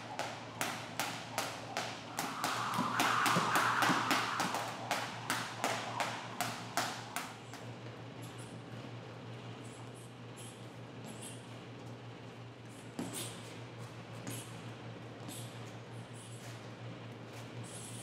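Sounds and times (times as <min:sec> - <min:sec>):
skipping rope slapping a mat: 0:00.2 - 0:02.6.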